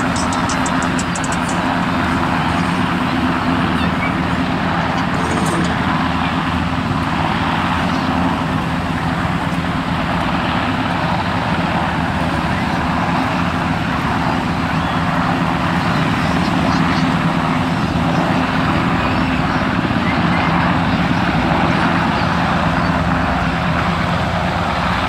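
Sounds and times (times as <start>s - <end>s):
helicopter rotor and turbine drone: 0.0s - 25.0s.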